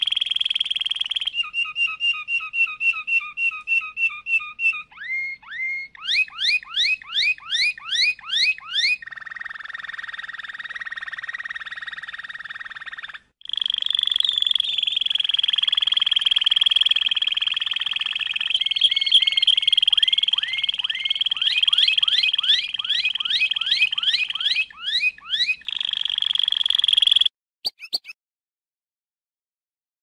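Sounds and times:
canary singing: 0.0s - 28.2s.

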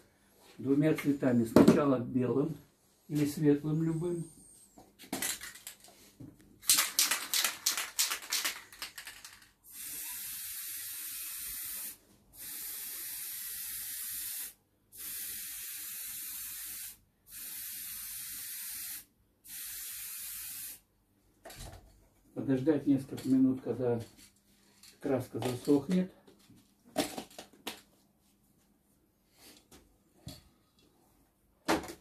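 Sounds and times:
spray can ball rattling: 5.1s - 5.9s, 6.6s - 14.4s
spray paint hissing: 6.7s - 20.8s.

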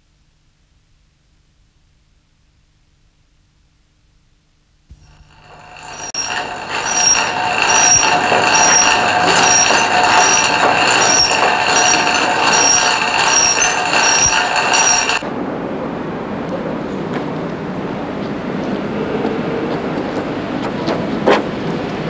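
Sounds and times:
bicycle chain and wheels rushing: 5.0s - 15.2s
short high squeak: 5.0s - 15.2s.

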